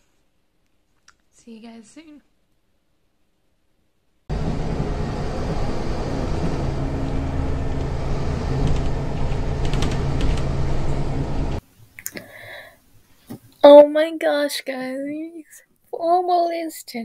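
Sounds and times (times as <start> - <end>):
bus engine and road drone: 4.3 - 11.6.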